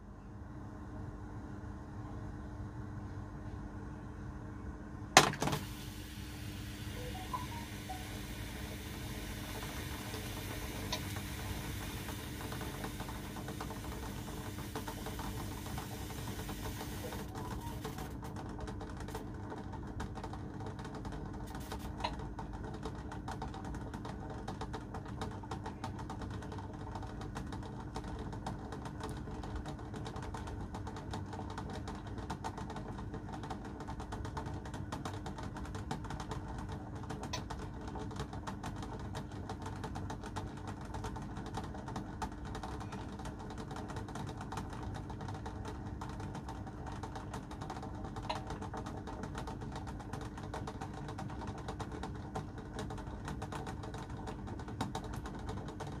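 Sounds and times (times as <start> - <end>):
faint steady hum: 0.0 - 56.0
water boiling in a steel pot: 5.5 - 18.3.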